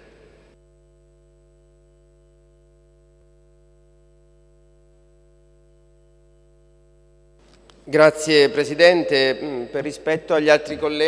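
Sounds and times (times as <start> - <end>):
faint electrical mains hum: 0.0 - 11.0.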